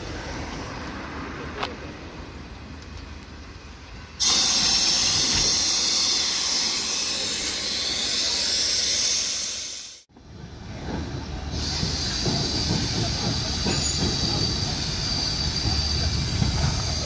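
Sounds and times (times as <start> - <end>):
steam locomotive hissing: 4.1 - 17.0.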